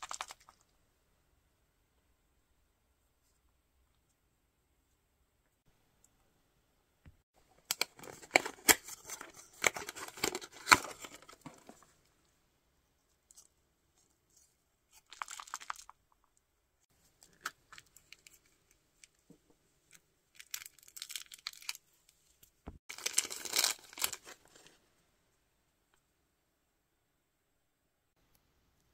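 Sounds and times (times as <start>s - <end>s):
plastic packaging crinkling and tearing: 7.7s - 11.4s, 15.0s - 15.9s, 20.4s - 21.8s, 22.9s - 24.7s.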